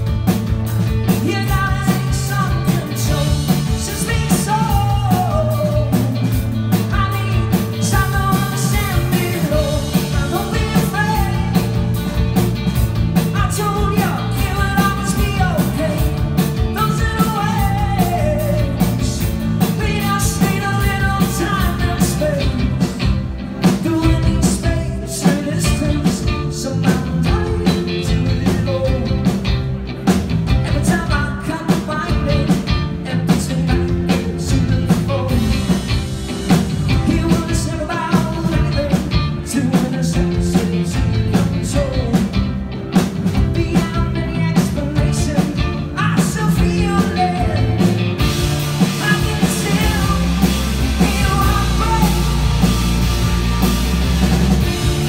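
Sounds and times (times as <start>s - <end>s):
electric guitar: 0.0s - 55.0s
live rock music: 0.0s - 55.0s
man singing: 0.8s - 53.0s
drum beat: 46.3s - 55.0s.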